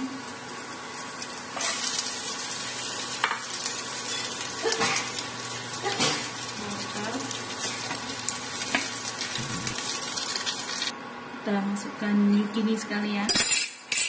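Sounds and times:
chicken sizzling in hot oil: 0.0s - 10.9s.

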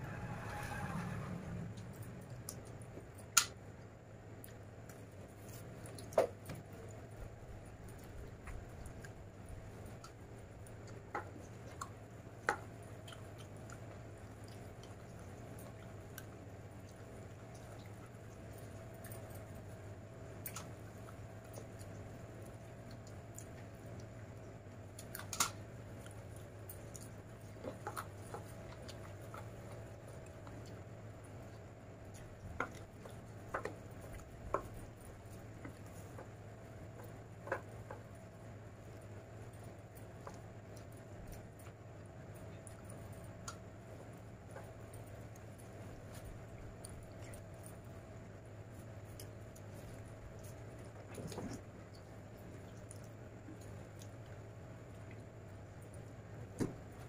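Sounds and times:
low hum: 0.0s - 5.5s
steady low hum: 0.0s - 57.0s
food squishing by hand: 1.8s - 57.0s.

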